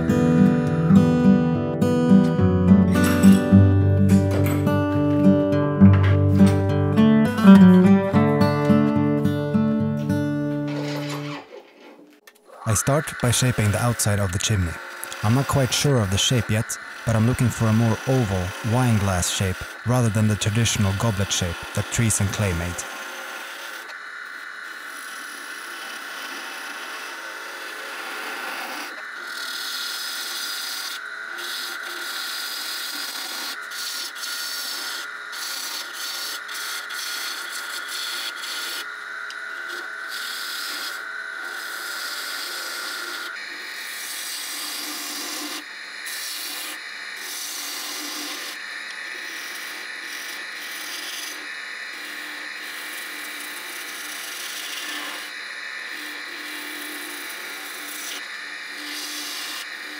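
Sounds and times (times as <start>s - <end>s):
wood lathe whine: 2.9s - 59.9s
lathe tool cutting wood: 10.6s - 59.9s.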